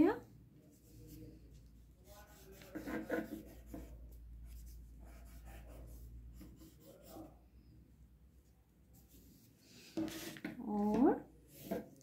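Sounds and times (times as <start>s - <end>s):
pencil scratching on paper: 2.0s - 7.4s, 10.0s - 10.5s.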